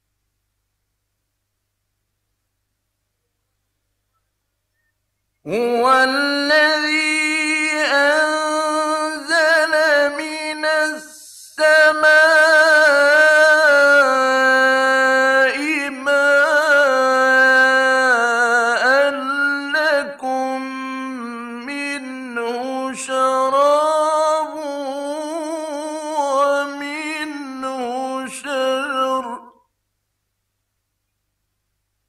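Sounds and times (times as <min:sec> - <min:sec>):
man reciting melodically: 0:05.4 - 0:29.7.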